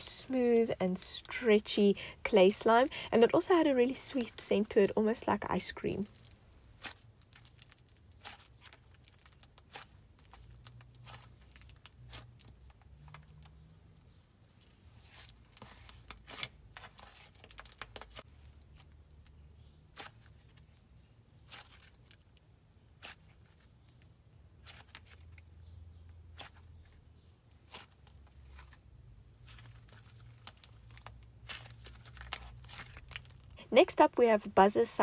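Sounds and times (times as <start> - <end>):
low steady hum: 0.0 - 7.4
slime crackling and popping: 6.2 - 13.2, 17.1 - 18.3.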